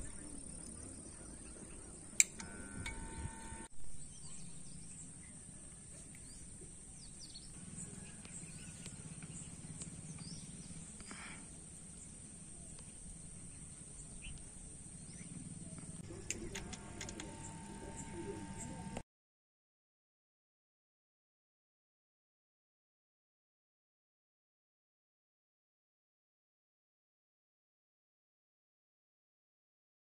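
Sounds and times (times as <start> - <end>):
faint bird chirps: 3.1 - 16.6.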